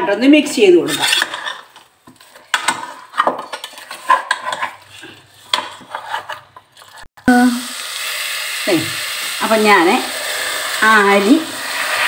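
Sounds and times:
spoon scraping metal pot: 0.6 - 7.1.

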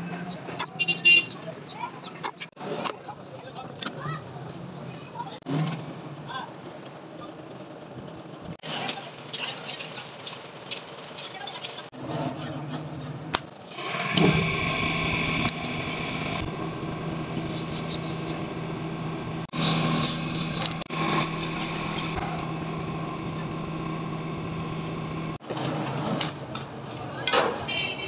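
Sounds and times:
electric motor drilling wood: 13.7 - 17.4.

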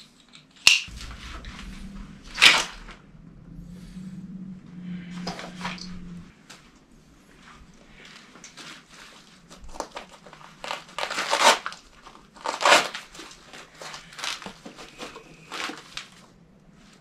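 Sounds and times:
scraping rustles: 0.9 - 17.0
nylon rustling and crinkling: 5.2 - 17.0.

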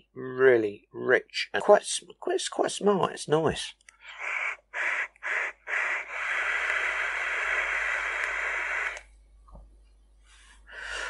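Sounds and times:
person breathing while vaping: 3.9 - 9.0, 10.2 - 11.0.

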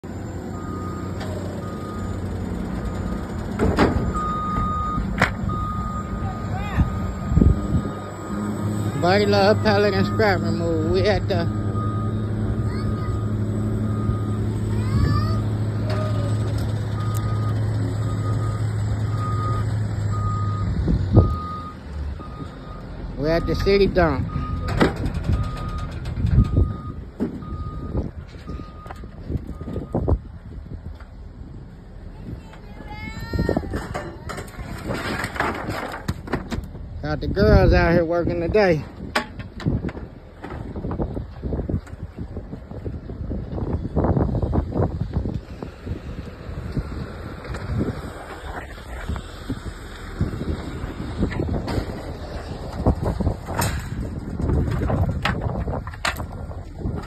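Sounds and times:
vehicle engines rumbling: 0.0 - 57.0
backup alarm beeping: 4.0 - 14.8, 16.1 - 30.1.

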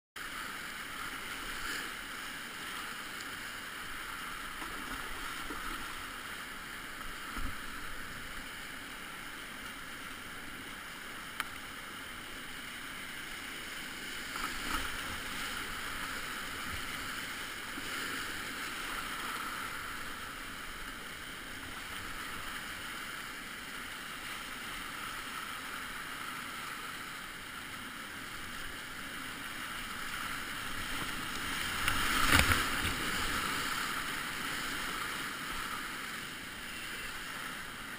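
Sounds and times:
paddle splashes and knocks: 31.6 - 33.4.

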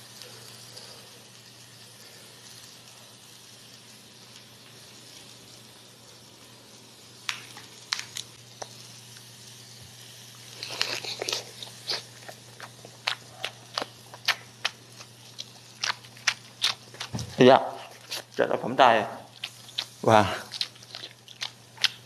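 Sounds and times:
faint steady hiss: 0.0 - 15.8
crisp eating crunches: 10.5 - 18.5, 19.3 - 22.0
wet mouth clicks: 10.6 - 17.1, 19.4 - 22.0.

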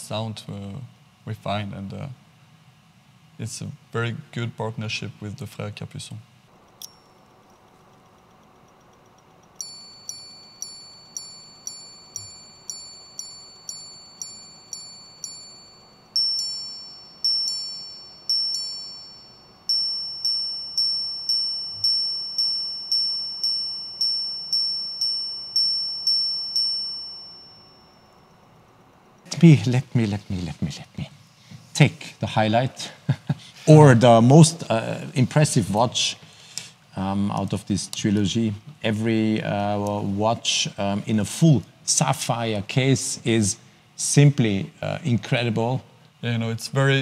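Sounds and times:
ringing watch gong strikes: 9.6 - 28.4.

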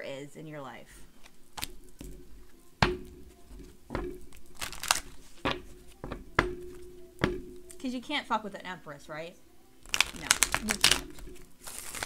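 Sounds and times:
cards snapping and slapping: 1.2 - 1.8, 4.6 - 5.3, 9.9 - 12.0
papery card rustle: 4.5 - 5.4, 9.9 - 12.0.

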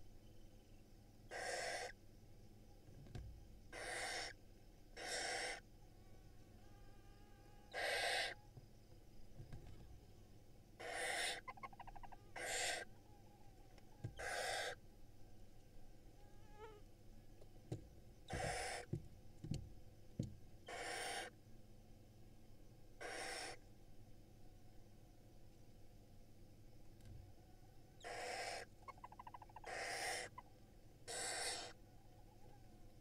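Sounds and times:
owl chicks hissing: 1.3 - 2.0, 3.7 - 4.4, 5.0 - 5.6, 7.7 - 8.4, 10.8 - 12.9, 14.2 - 14.8, 18.3 - 18.9, 20.7 - 21.3, 23.0 - 23.6, 28.0 - 30.4, 31.1 - 31.8.

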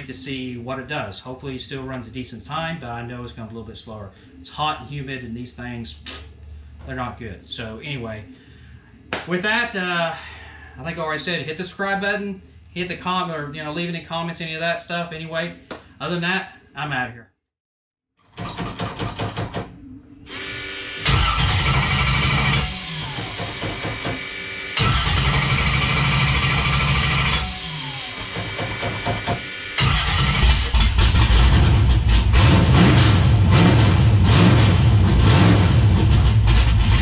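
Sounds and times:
car engine revving: 21.0 - 23.2, 24.8 - 28.1, 29.8 - 37.0.

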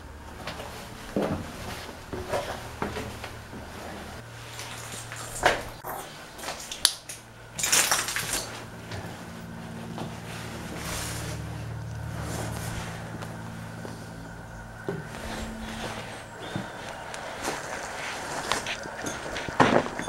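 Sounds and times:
low steady hum: 0.0 - 20.0
scraping rustle: 7.6 - 20.0.

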